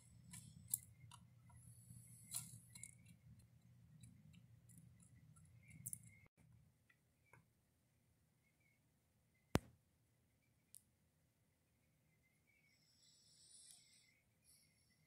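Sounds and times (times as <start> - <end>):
low steady hum: 0.0 - 9.7.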